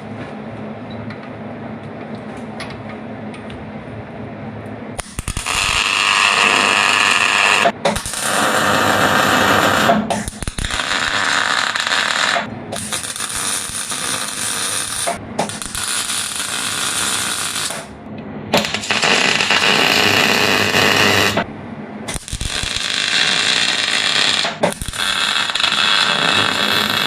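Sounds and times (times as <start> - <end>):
welding arc crackling: 5.0 - 18.0, 18.6 - 21.5, 22.1 - 27.0.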